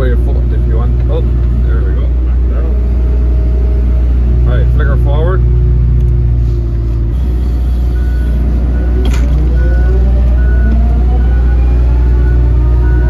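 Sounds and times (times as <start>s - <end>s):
diesel engine with rising whine: 0.0s - 13.0s
reversing alarm beeping: 7.1s - 13.0s.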